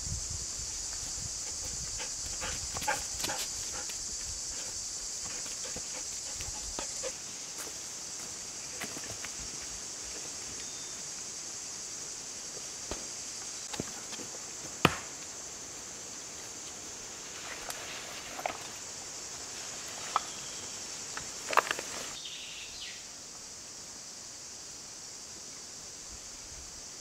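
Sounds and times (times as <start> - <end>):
high insect drone: 0.0 - 27.0
rustle of gear: 21.1 - 22.2.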